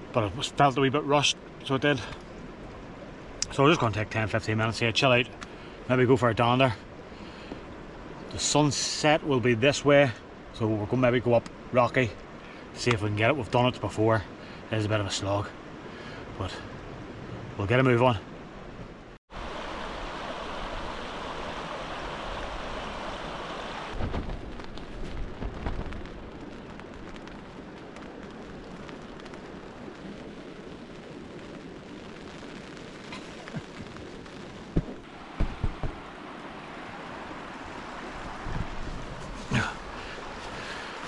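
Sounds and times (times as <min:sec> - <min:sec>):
mountain stream rushing: 0:00.0 - 0:41.0
wind buffeting microphone: 0:19.4 - 0:32.3, 0:33.2 - 0:36.2, 0:37.1 - 0:41.0.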